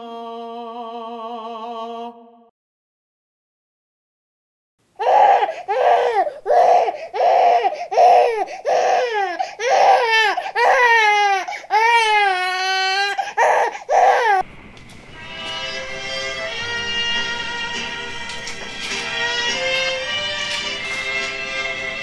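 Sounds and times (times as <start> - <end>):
person crying and sobbing: 5.0 - 14.4.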